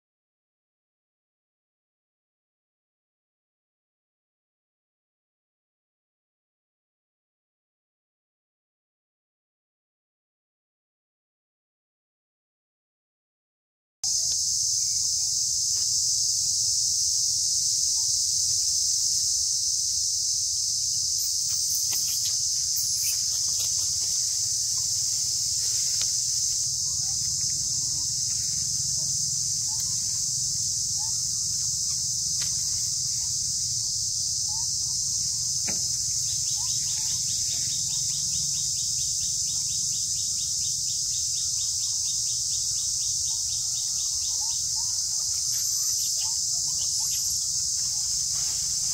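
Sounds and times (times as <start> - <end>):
fast insect ticking: 14.1 - 48.9
insects droning: 14.1 - 48.9
bird chirps: 21.1 - 33.5, 34.5 - 48.9.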